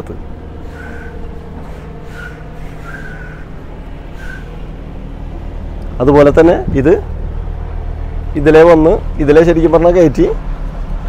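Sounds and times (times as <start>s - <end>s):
truck engine idling: 0.0s - 11.0s
high whistle-like chirps: 0.6s - 4.7s.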